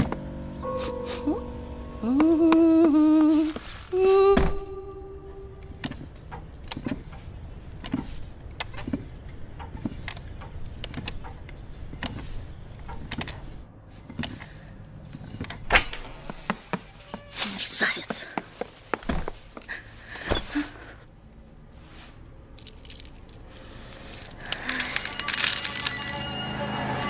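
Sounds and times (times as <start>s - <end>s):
person humming: 0.8s - 5.8s
rocking chair creaking: 22.0s - 26.3s.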